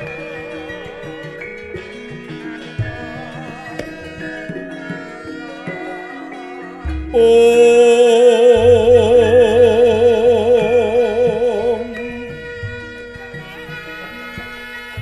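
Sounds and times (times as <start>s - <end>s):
ringing metallophones: 0.0s - 15.0s
long held sung note with vibrato: 7.1s - 14.6s
soft low beats: 8.5s - 13.3s.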